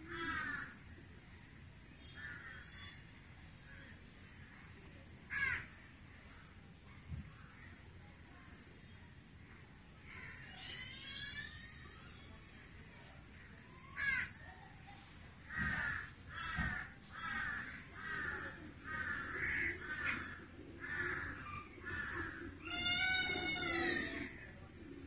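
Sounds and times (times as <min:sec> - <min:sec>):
animal long drawn-out call: 0:19.3 - 0:24.4.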